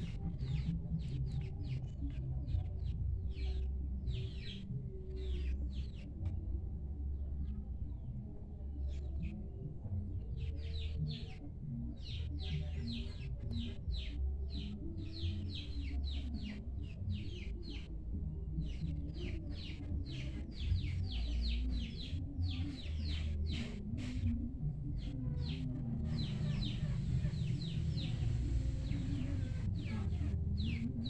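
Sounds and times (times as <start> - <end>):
small birds chirping: 10.3 - 17.9, 18.6 - 31.0.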